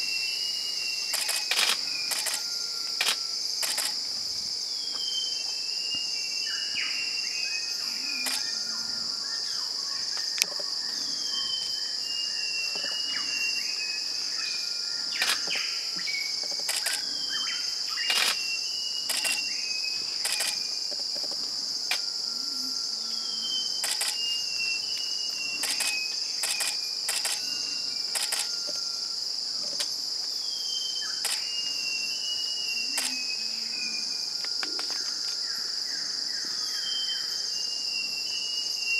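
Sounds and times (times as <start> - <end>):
insects droning: 0.0 - 38.9
sharp clicks: 1.1 - 2.4, 3.0 - 4.0, 16.6 - 17.0, 19.1 - 19.4, 20.2 - 20.6, 23.8 - 24.2, 25.6 - 27.4, 31.2 - 31.4.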